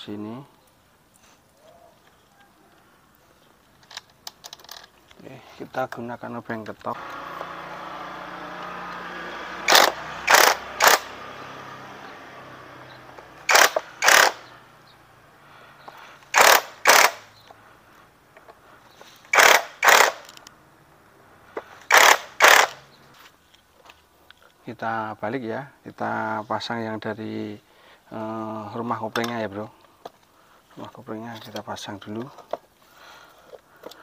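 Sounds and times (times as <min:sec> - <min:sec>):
power driver motor whirring: 0:06.9 - 0:14.9, 0:16.3 - 0:17.4, 0:19.3 - 0:20.5, 0:21.8 - 0:22.9.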